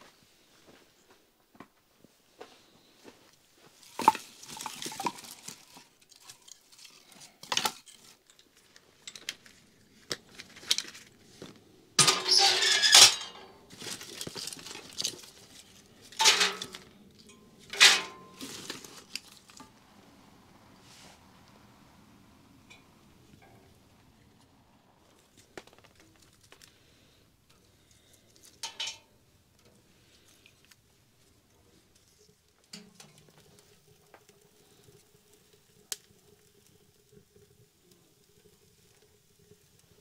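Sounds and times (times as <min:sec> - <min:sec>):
pots and cutlery clinking: 0:03.9 - 0:08.4, 0:12.0 - 0:19.7, 0:28.5 - 0:29.1, 0:32.7 - 0:33.5.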